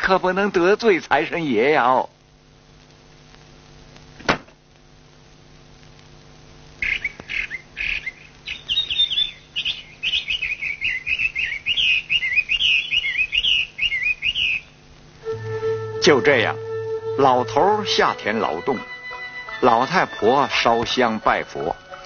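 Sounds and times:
faint steady hum: 0.0s - 22.0s
small birds chirping: 6.8s - 14.9s.

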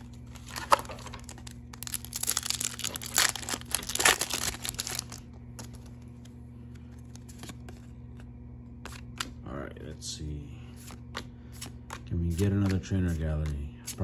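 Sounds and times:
foil pack tearing and crinkling: 0.4s - 5.8s.

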